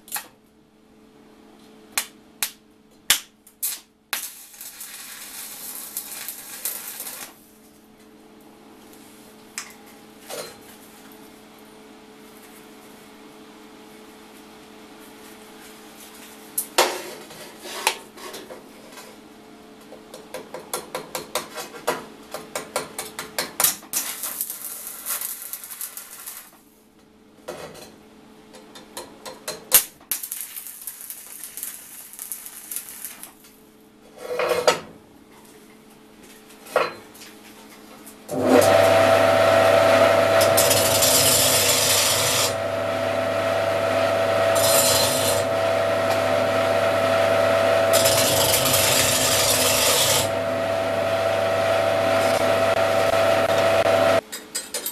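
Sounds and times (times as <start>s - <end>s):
arc welding crackling hiss: 3.6s - 7.5s, 23.9s - 26.6s, 30.1s - 33.5s, 40.4s - 42.6s, 47.9s - 50.3s
machine low hum: 38.3s - 54.2s.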